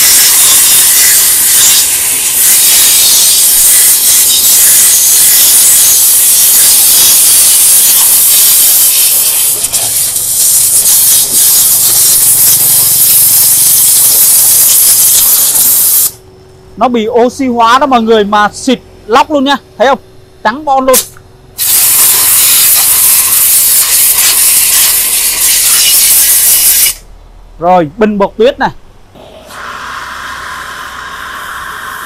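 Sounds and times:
pressure washer jet hissing: 0.0s - 16.2s, 21.0s - 27.0s, 29.5s - 32.0s.

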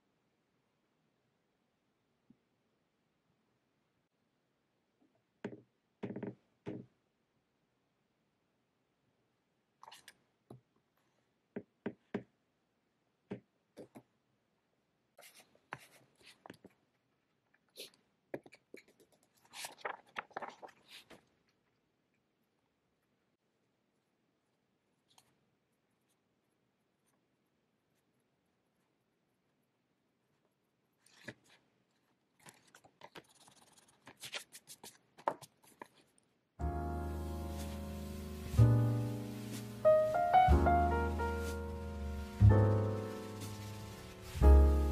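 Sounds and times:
paper pages rustling: 18.8s - 21.3s, 31.1s - 36.2s, 37.1s - 44.9s
piano music: 36.6s - 44.9s
scratchy rustle: 41.1s - 44.9s.

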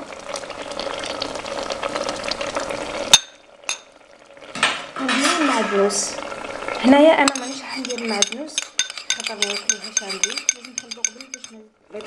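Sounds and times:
metal ladle stirring in pot: 7.2s - 12.0s.

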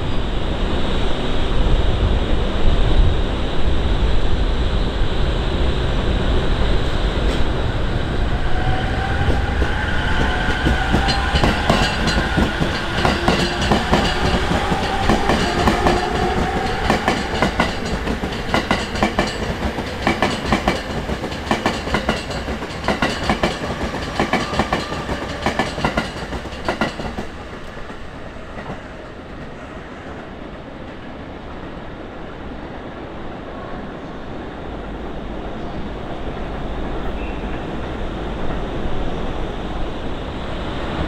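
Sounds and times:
wheels clacking over rail joints: 9.3s - 28.0s.

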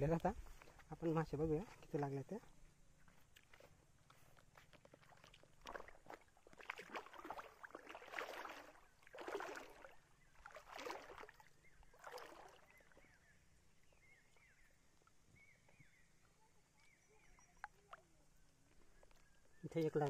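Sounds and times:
river water splashing: 3.4s - 15.2s.

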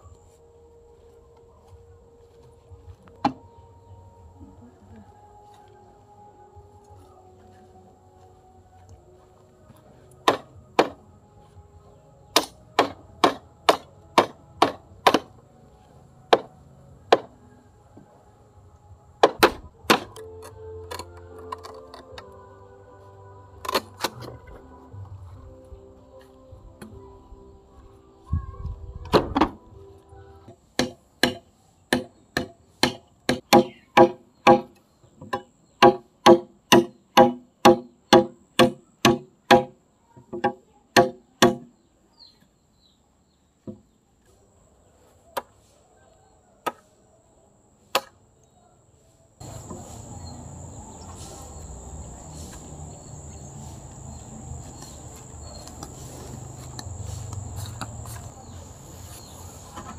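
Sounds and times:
tool striking bamboo: 10.2s - 11.0s, 12.3s - 15.3s, 16.3s - 16.5s, 17.1s - 17.4s, 19.2s - 22.2s, 23.6s - 24.4s, 30.8s - 41.7s, 47.9s - 48.2s.

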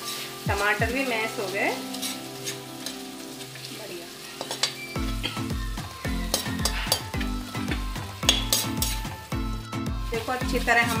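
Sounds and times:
metal spoon scraping a pan: 0.0s - 0.4s, 1.2s - 5.6s, 6.2s - 9.2s
sauce sizzling: 0.0s - 11.0s
background music with low beat: 0.4s - 1.0s, 4.4s - 11.0s.

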